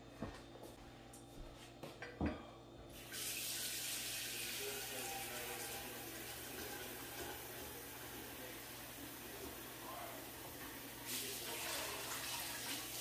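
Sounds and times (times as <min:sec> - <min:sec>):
tap water running into sink: 0:02.9 - 0:13.0.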